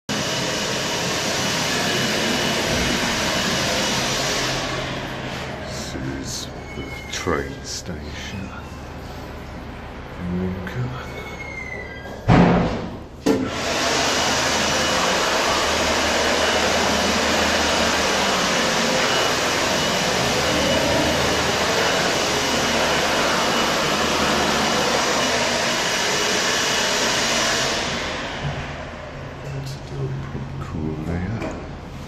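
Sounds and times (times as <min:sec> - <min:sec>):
electric hand dryer blowing: 0:00.1 - 0:06.4, 0:13.3 - 0:29.7
loud thump: 0:12.3 - 0:13.5.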